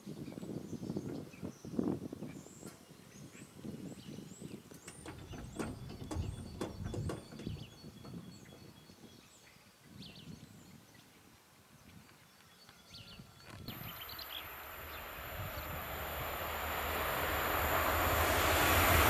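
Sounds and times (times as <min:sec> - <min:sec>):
knocks: 0:04.9 - 0:08.2
small birds chirping: 0:11.8 - 0:15.9
low rumbling: 0:13.7 - 0:19.0.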